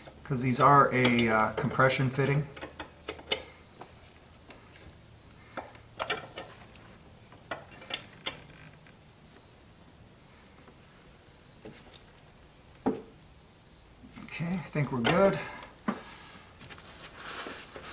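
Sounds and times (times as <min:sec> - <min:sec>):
wrench metallic clicks: 0:01.0 - 0:01.7.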